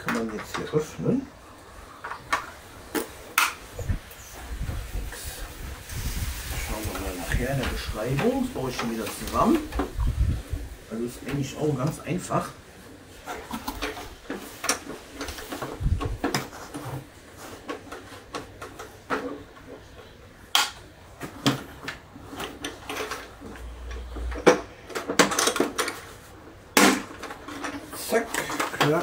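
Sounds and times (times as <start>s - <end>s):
hard plastic parts clicking: 13.2s - 29.0s.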